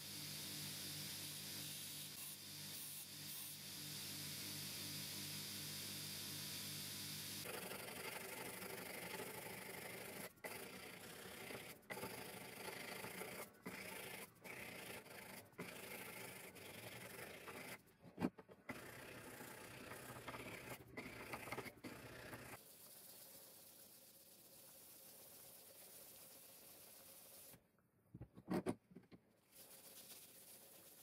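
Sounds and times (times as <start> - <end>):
sandpaper rubbing metal: 29.5 - 31.0.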